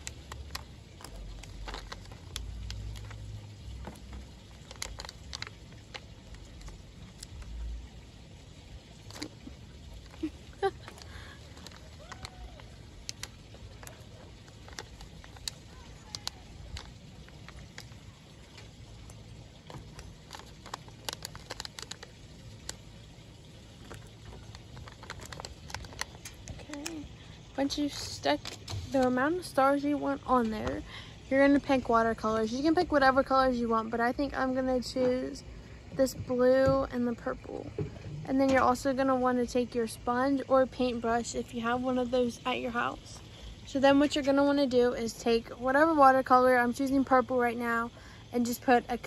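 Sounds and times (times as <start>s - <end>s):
stickers peeling and rustling: 0.0s - 7.7s, 9.0s - 22.9s, 23.7s - 27.1s
paper sticker sheet crinkling: 23.8s - 27.1s.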